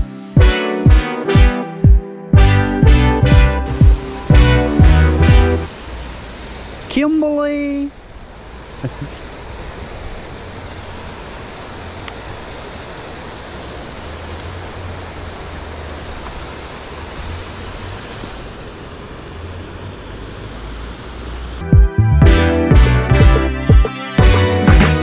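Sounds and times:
loud music with drums: 0:00.0 - 0:05.7, 0:21.7 - 0:25.0.

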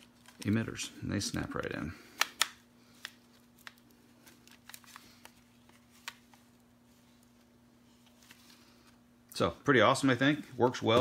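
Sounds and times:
hard plastic snaps: 0:02.1 - 0:03.8.

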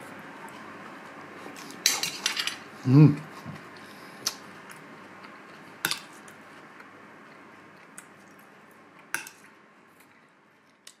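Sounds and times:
low room noise: 0:00.0 - 0:11.0
tableware clinking: 0:01.8 - 0:02.6.

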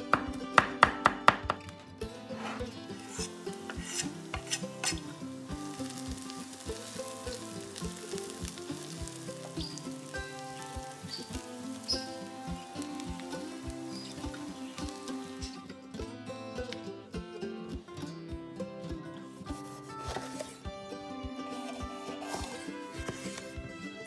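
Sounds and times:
background music with beat: 0:00.0 - 0:24.0
sharp knocks: 0:00.2 - 0:01.6
food sizzling in frying pan: 0:02.3 - 0:15.7, 0:21.6 - 0:24.0.

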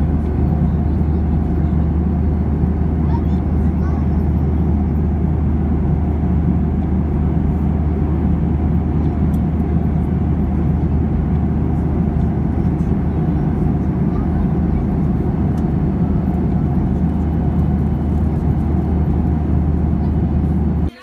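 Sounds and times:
jet airliner cabin noise: 0:00.0 - 0:21.0.

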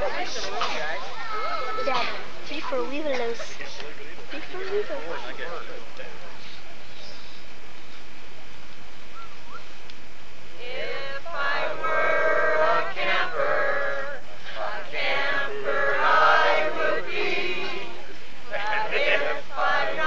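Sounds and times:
group of people singing: 0:10.6 - 0:20.0.

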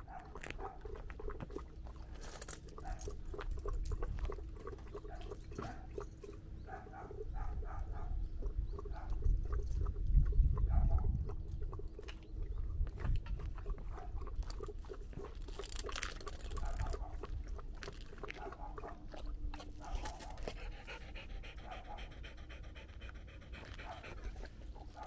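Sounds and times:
dog panting: 0:19.8 - 0:25.0.

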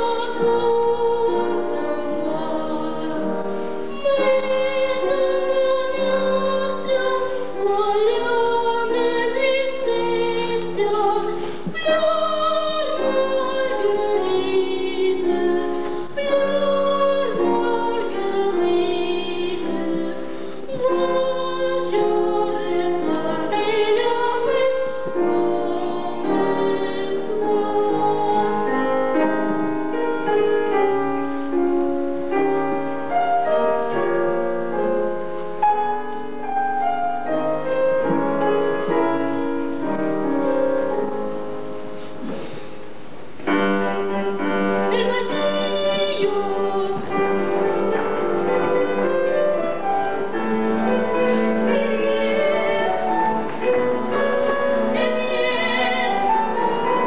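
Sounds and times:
piano accompaniment: 0:00.0 - 0:57.0
operatic singing: 0:44.4 - 0:57.0.

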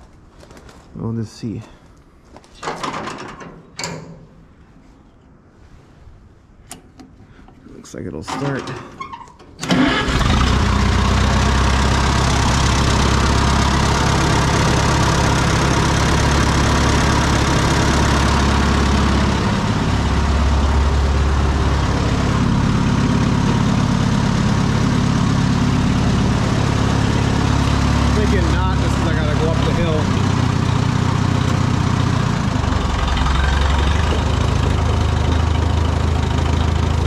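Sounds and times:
tractor engine running: 0:08.2 - 0:37.0.

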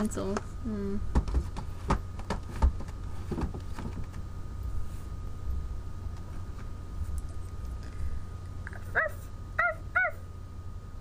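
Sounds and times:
steady low hum: 0:00.0 - 0:11.0
objects knocking on a shelf: 0:01.1 - 0:04.2.

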